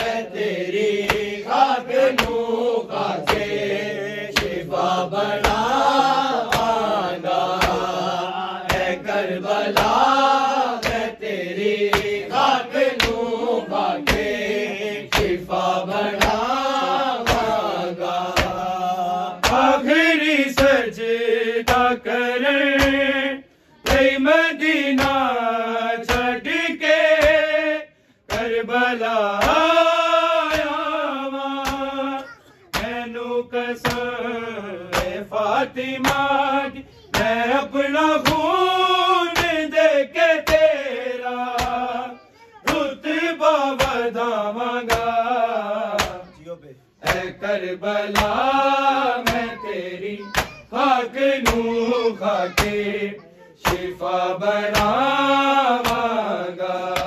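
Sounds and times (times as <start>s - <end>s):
rhythmic chest-beating slaps: 0.0s - 57.0s
voices chanting a lament: 0.0s - 57.0s.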